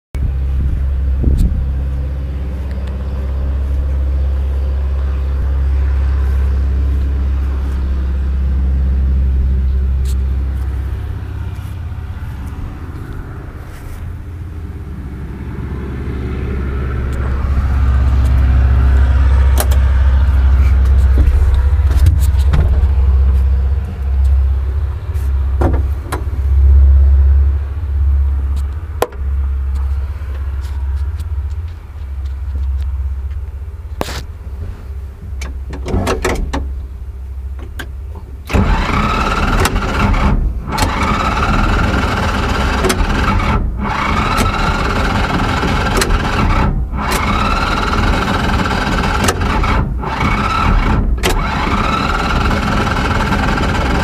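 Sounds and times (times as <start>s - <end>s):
machinery droning hum: 0.2s - 54.0s
sharp clicks and knocks: 19.5s - 19.9s, 20.6s - 23.5s, 25.2s - 26.3s, 28.5s - 30.0s.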